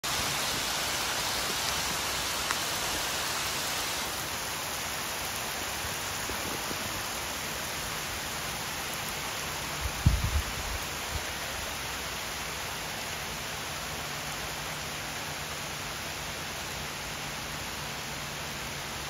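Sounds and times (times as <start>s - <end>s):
heavy rain on river water: 0.0s - 19.0s.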